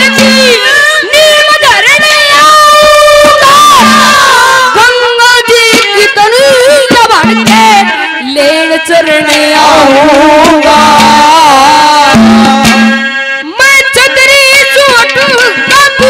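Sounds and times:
hand drum: 0.0 - 13.2
man singing over loudspeaker: 1.2 - 5.6, 7.4 - 12.6, 13.6 - 16.0.

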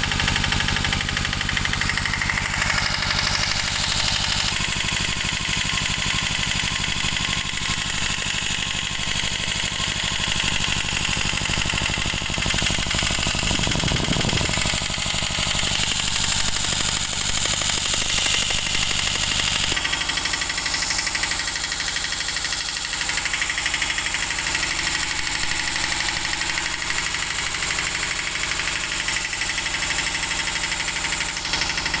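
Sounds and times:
small engine idling: 0.0 - 32.0.

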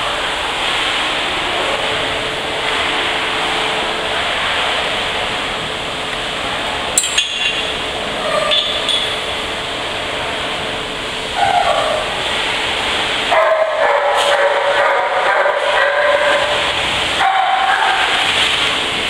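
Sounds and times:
pool water rushing: 0.0 - 19.0
sharp metallic clink: 7.0 - 7.7.

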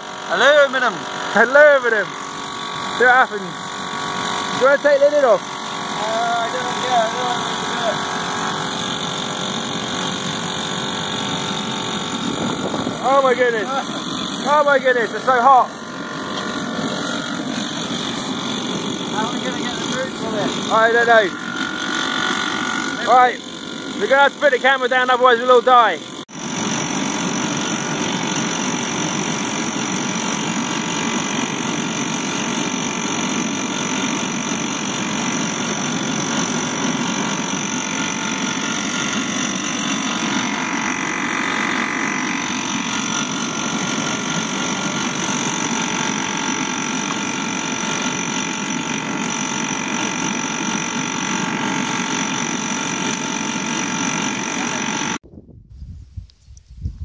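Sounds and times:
air blower whine: 0.0 - 55.2
rush of flame and forced air: 6.8 - 20.8.

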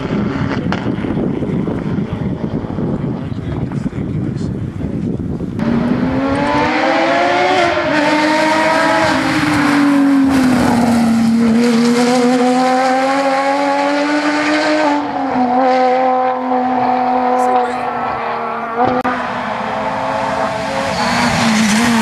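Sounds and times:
rally car engines revving: 0.0 - 4.9, 5.5 - 22.0.

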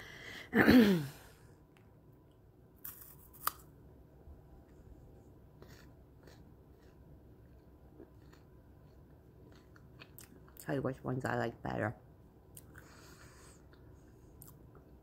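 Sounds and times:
faint chewing: 4.5 - 10.7, 12.5 - 15.0.

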